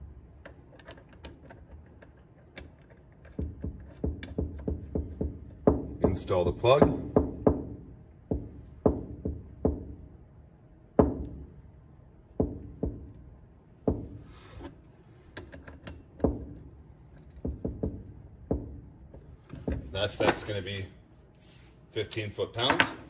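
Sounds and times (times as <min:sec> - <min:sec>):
sharp knocks and taps: 0:00.4 - 0:07.7, 0:17.2 - 0:19.9.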